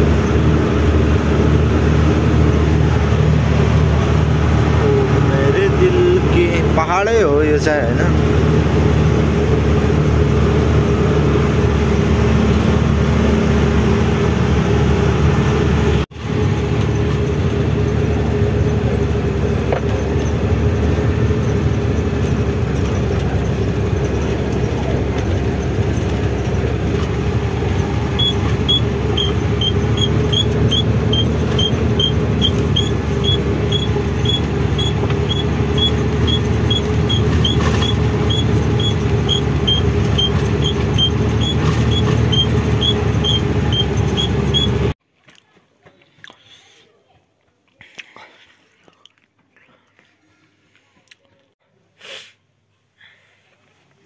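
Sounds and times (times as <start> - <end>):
truck diesel engine drone: 0.0 - 45.0.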